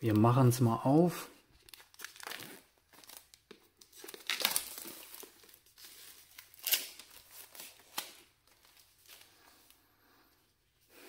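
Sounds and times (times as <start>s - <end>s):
plastic shrink-wrap crinkling: 1.6s - 9.8s.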